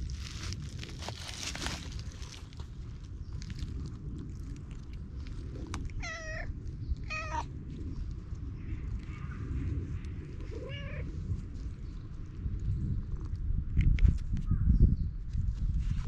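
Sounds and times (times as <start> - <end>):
steady low rumble: 0.0 - 16.0
cat meowing: 6.0 - 6.5, 7.1 - 7.5, 10.5 - 11.1.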